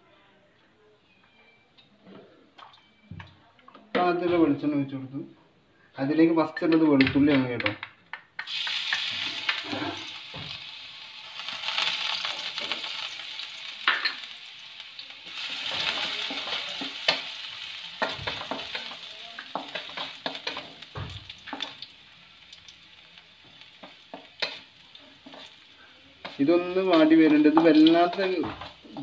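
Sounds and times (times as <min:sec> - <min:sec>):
garlic sizzling in oil: 0:08.4 - 0:29.0.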